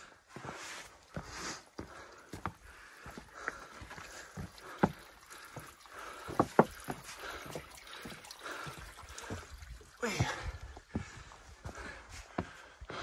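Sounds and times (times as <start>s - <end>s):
faint water trickle: 0.4s - 12.0s
boots on rock: 10.0s - 12.6s.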